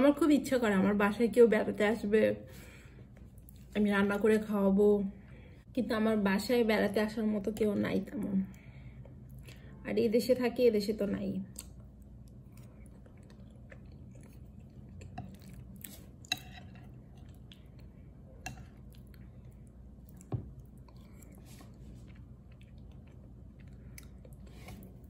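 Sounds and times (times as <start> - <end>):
faint low hum: 0.0 - 25.0
person chewing soft food: 11.5 - 25.0.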